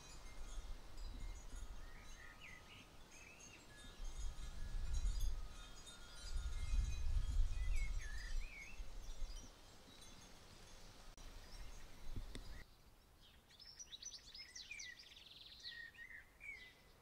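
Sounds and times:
wind rumbling on microphone: 0.0 - 9.5, 11.0 - 12.6
faint birdsong: 0.0 - 17.0.

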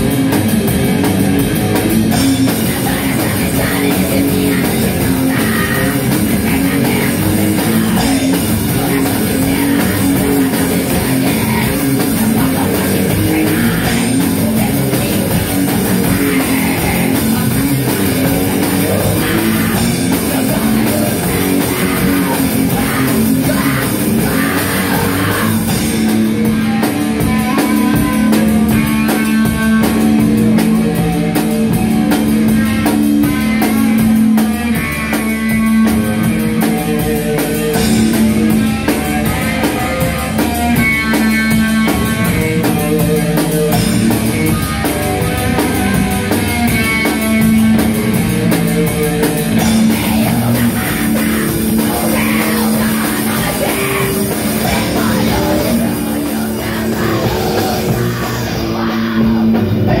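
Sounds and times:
bass guitar: 0.0 - 60.0
distorted electric guitar: 0.0 - 60.0
fast drumming: 0.0 - 60.0.

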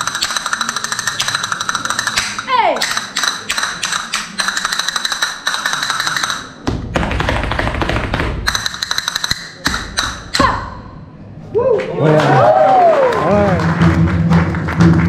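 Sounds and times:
castanets clicking: 0.0 - 6.6, 8.4 - 10.4.

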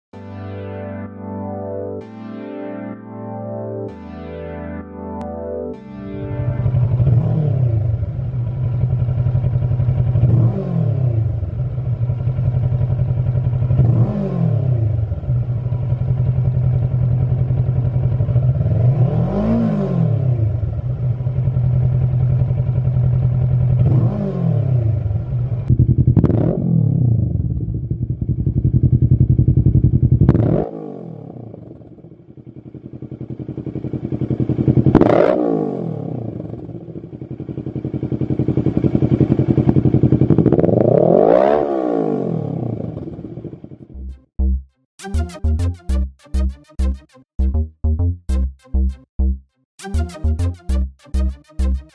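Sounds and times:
motorcycle engine idling: 6.6 - 14.0, 14.9 - 18.8, 20.4 - 24.3, 24.9 - 26.3, 27.1 - 30.3, 31.5 - 35.0, 36.1 - 40.7
throttle blips: 43.9 - 51.9.

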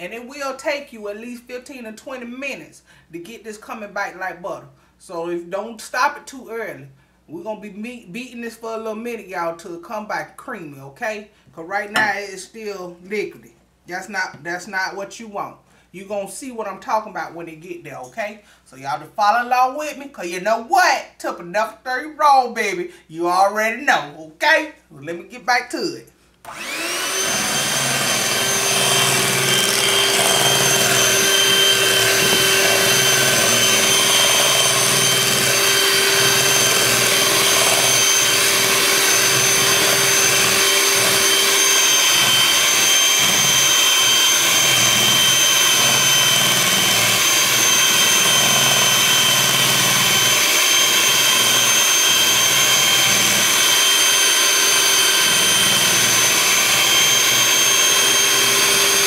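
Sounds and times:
electric hand mixer whining: 26.5 - 59.0
beaters churning liquid: 26.6 - 59.0.

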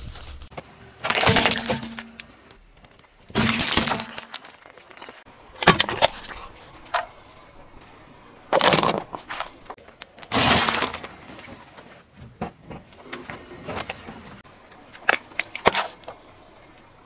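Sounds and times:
hard plastic cracking under tyre: 8.5 - 11.4.

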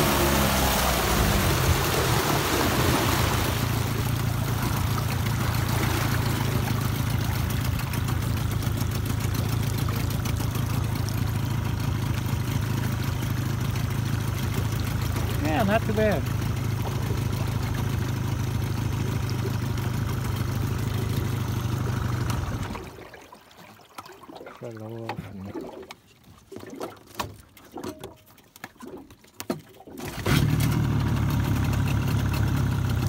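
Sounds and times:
rush of water and wind: 0.0 - 7.4
outboard motor running: 0.0 - 33.0.

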